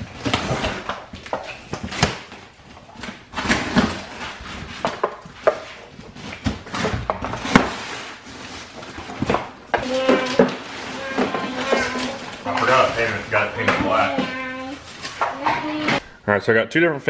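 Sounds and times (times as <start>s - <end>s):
cardboard flaps scraping and rustling: 2.9s - 15.3s
packing tape tearing: 6.1s - 15.4s.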